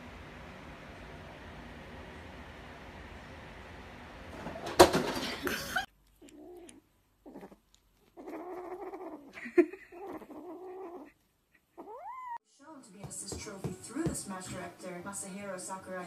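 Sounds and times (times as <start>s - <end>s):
loud rustling and clatter: 4.4s - 5.5s
cat yowling: 6.2s - 11.2s, 11.8s - 12.4s.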